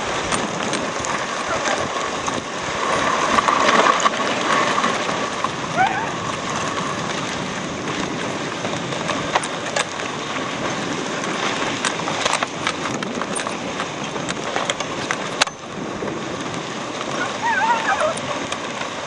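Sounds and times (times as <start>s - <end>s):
sled clicks and knocks: 0.0s - 19.0s
sled runners hissing on snow: 15.8s - 19.0s.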